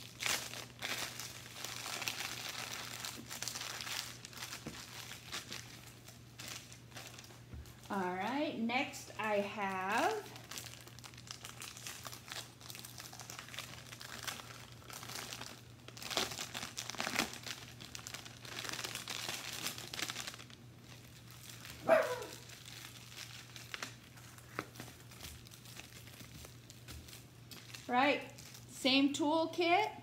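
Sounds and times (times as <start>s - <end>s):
plastic bags crinkling: 0.0s - 8.4s, 9.4s - 28.8s.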